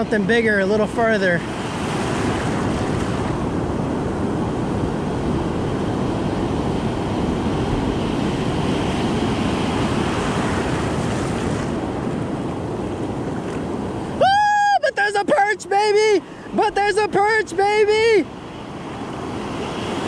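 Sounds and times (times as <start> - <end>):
ocean surf breaking: 0.0 - 20.0.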